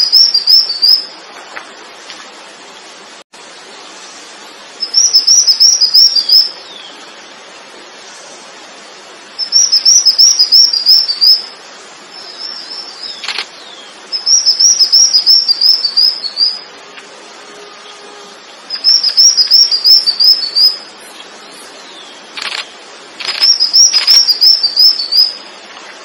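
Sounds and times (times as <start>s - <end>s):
songbird singing high chirps: 0.0s - 1.2s, 4.8s - 7.2s, 9.4s - 16.7s, 17.6s - 25.5s.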